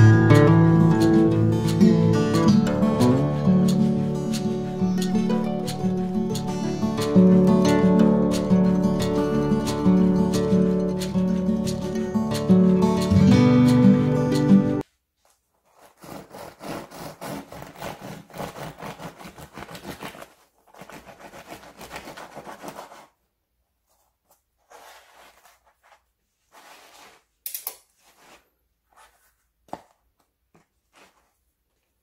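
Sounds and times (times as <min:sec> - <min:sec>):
bread knife sawing crust: 0:15.6 - 0:23.1.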